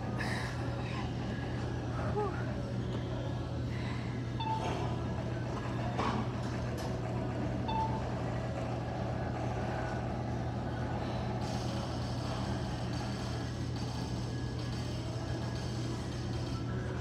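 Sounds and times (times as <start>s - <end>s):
low hum of gym hall: 0.0s - 17.0s.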